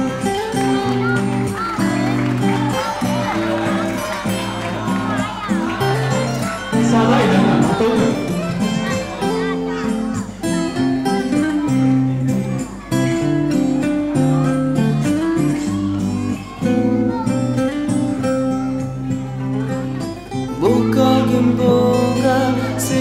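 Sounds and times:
pop song guitar: 0.0 - 23.0
man singing: 6.8 - 8.5, 20.6 - 23.0.

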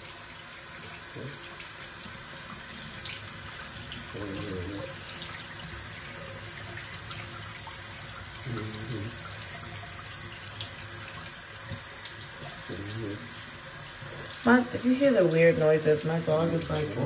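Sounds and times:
tap running into sink: 9.0 - 13.2.

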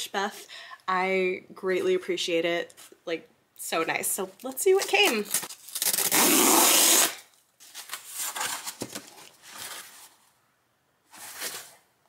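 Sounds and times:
cardboard ripping: 5.0 - 10.1
cardboard scraping and rustling: 7.6 - 10.2, 11.1 - 11.9.

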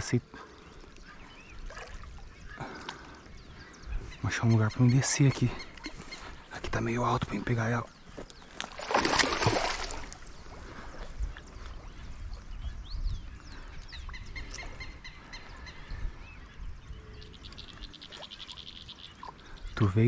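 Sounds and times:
birds chirping: 0.0 - 20.0
fish thrashing and splashing: 8.5 - 10.3.

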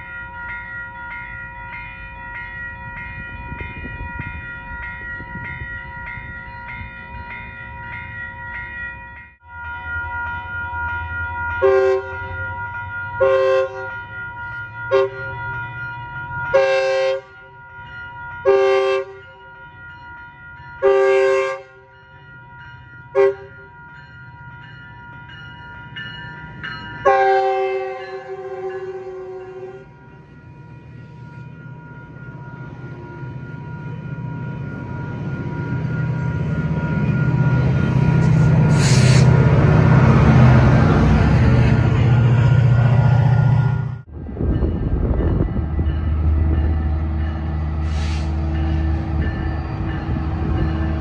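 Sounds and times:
train horn blasts: 11.6 - 12.5, 13.2 - 14.0, 14.9 - 15.4, 16.5 - 17.5, 18.4 - 19.4, 20.8 - 22.0, 23.1 - 23.7, 27.0 - 29.9
diesel locomotive rumble: 32.8 - 51.0
brief hiss: 47.9 - 48.4.

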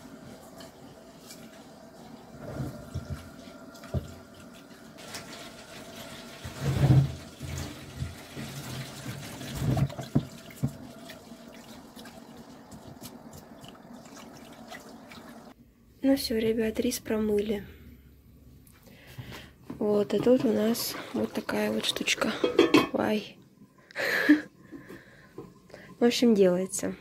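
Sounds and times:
water splashing: 1.1 - 15.6
tap water running into pot: 2.3 - 15.6, 20.1 - 23.2
metal pot clanking: 20.1 - 23.0.

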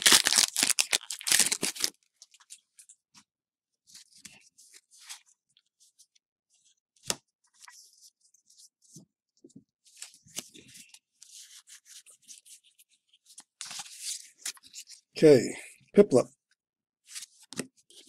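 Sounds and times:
trading cards rustling: 0.0 - 1.9.

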